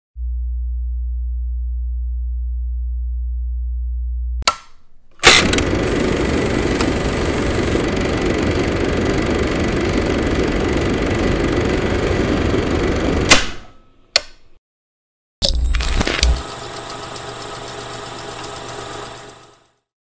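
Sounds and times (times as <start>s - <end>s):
film projector running: 5.2s - 13.6s, 15.5s - 19.8s.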